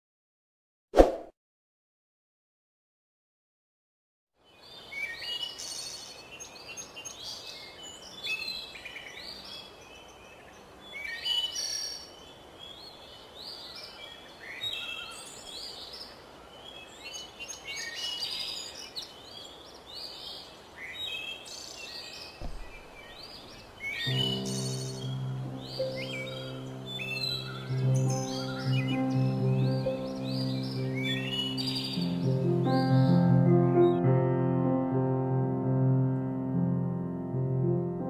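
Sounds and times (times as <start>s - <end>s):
faint steady hiss: 4.4s - 32.4s
birds chirping and singing: 4.5s - 34.1s.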